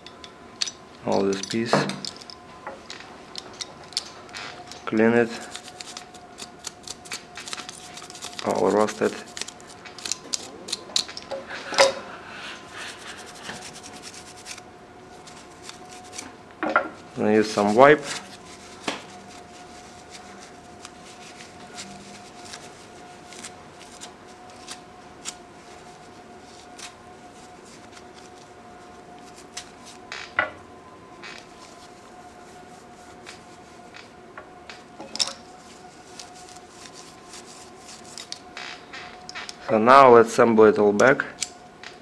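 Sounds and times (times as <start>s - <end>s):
rubbing and clicks of metal parts: 0.0s - 12.0s
faint steady hum: 0.0s - 42.0s.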